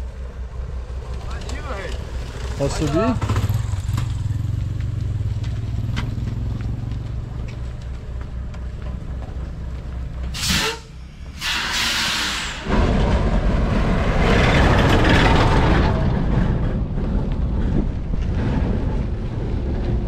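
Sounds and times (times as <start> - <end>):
short hissing rush: 10.3 - 12.7
rough rushing noise: 11.3 - 20.0.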